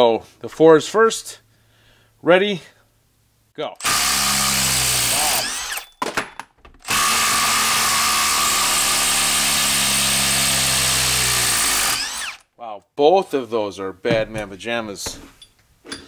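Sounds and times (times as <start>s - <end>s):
impact driver hammering screw into wood: 3.8s - 5.9s, 6.8s - 12.4s.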